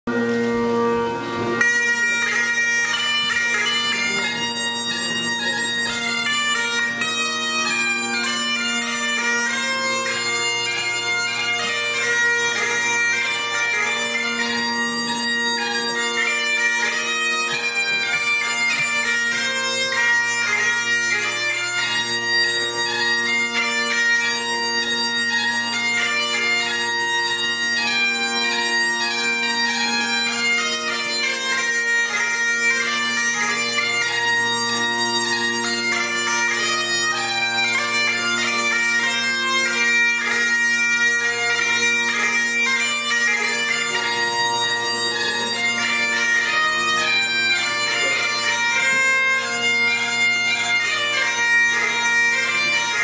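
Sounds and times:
bagpipe chanter melody: 0:00.1 - 0:53.0
bagpipe drones humming: 0:00.1 - 0:53.0.

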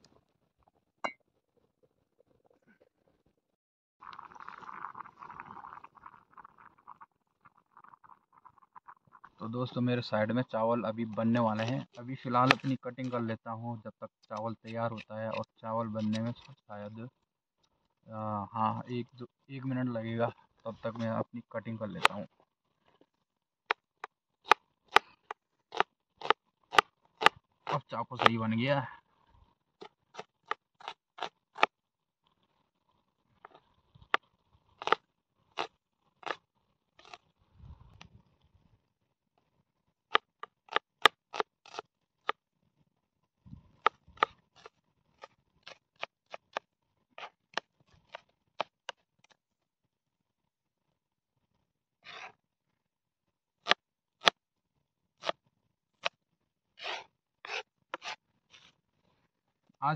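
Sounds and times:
knife chopping on plastic board: 0:12.4 - 0:12.8.

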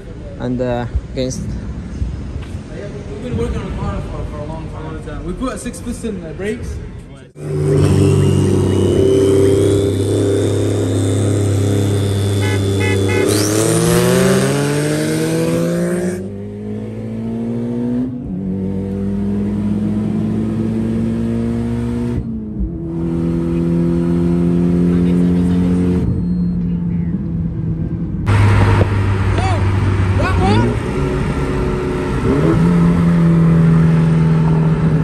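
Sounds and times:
car engine revving with whine: 0:07.4 - 0:35.0
short beeps: 0:25.9 - 0:27.2.

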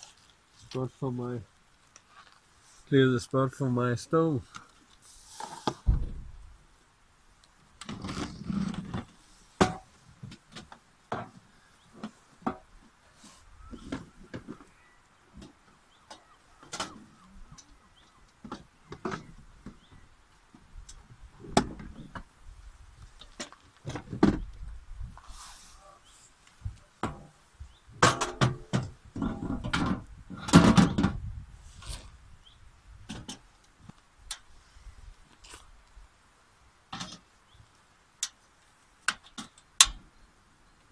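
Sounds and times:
items knocking and rustling: 0:07.8 - 0:12.7, 0:18.4 - 0:20.7, 0:23.2 - 0:24.6, 0:28.0 - 0:31.3.

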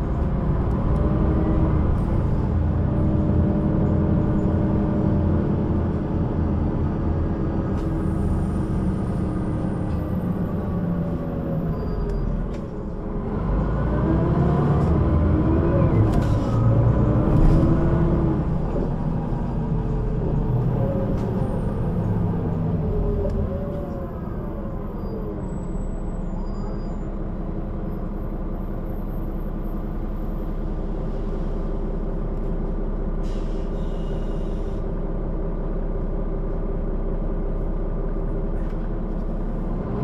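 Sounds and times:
bus diesel engine idling: 0:00.0 - 0:13.8, 0:14.7 - 0:39.8.

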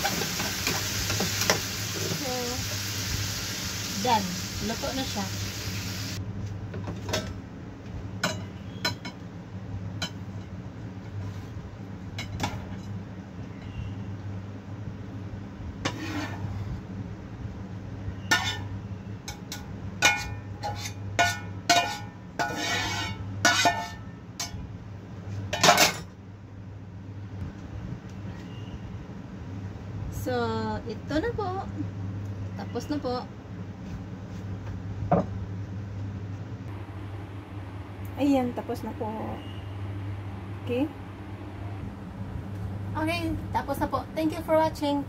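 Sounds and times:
metal spatula scraping a frying pan: 0:15.9 - 0:16.6, 0:18.2 - 0:18.7, 0:20.0 - 0:24.0.

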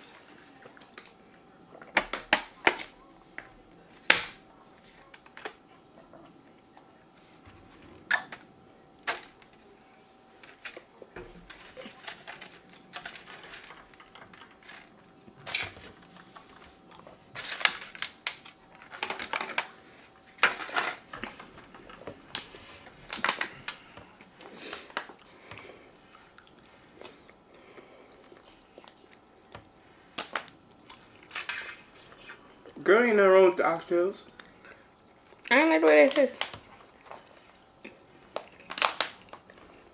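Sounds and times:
plastic forks scraping foil trays: 0:10.4 - 0:14.9
chewing and mouth noises: 0:25.1 - 0:27.4.

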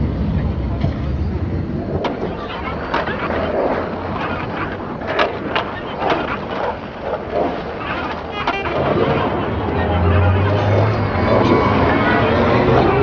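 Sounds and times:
chatter of passers-by: 0:00.0 - 0:13.0
clicks and clatter: 0:01.9 - 0:09.5.

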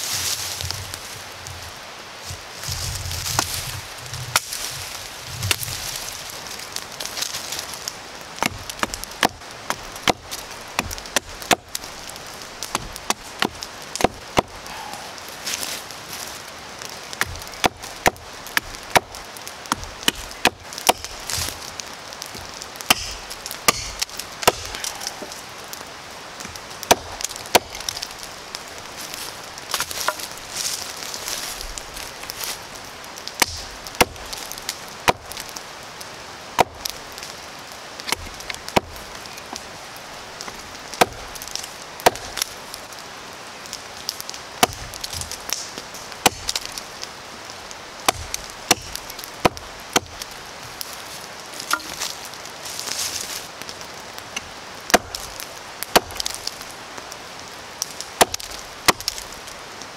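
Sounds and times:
hatchet chopping wood: 0:08.4 - 0:11.8, 0:12.6 - 0:14.6, 0:17.2 - 0:21.5, 0:22.3 - 0:25.2, 0:26.4 - 0:28.0, 0:33.4 - 0:34.3, 0:35.0 - 0:35.4, 0:38.1 - 0:39.0, 0:41.0 - 0:42.4, 0:44.6 - 0:46.7, 0:48.0 - 0:50.3, 0:51.7 - 0:52.0, 0:54.4 - 0:55.2, 0:55.9 - 0:56.4, 0:58.2 - 0:59.2.

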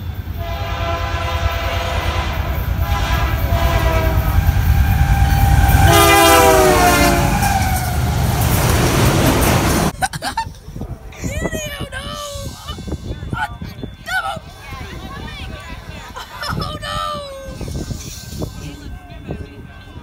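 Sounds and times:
train engine and wheels rumbling: 0:00.0 - 0:20.0
locomotive air horn: 0:00.3 - 0:08.3.

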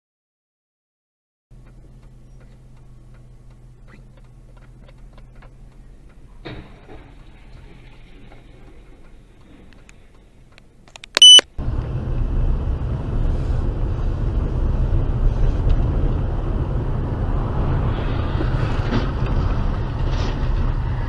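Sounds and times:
car driving on wet road: 0:01.6 - 0:10.5, 0:11.6 - 0:21.0.

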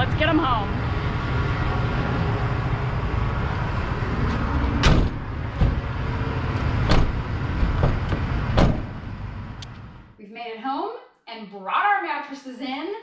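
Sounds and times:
steady low rumble: 0:00.0 - 0:10.2
van doors thudding shut: 0:04.7 - 0:06.0, 0:06.6 - 0:09.1.

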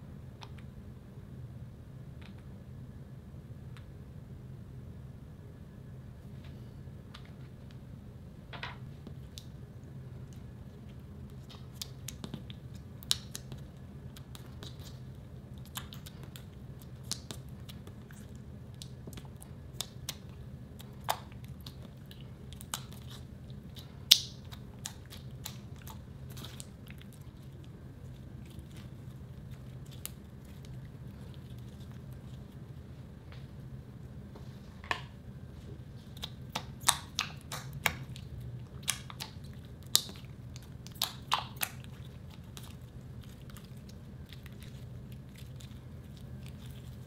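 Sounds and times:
faint steady hum: 0:00.0 - 0:47.0
slime kneaded by hand: 0:09.0 - 0:33.4, 0:35.5 - 0:47.0.

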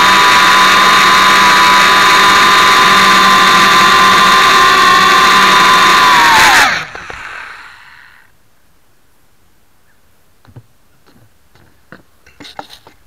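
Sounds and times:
drone motors spinning down: 0:00.0 - 0:08.3.

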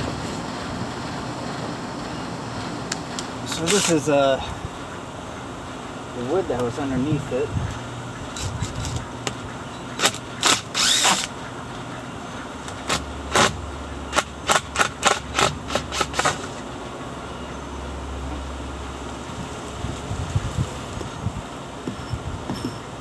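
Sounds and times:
wood knocking and clacking: 0:21.8 - 0:22.9.

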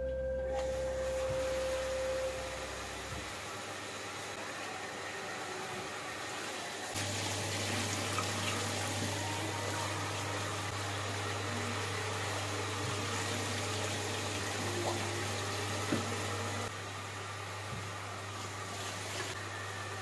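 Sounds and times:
rice washed by hand: 0:00.6 - 0:20.0
tap water running into metal pot: 0:07.0 - 0:09.2, 0:12.3 - 0:16.7.

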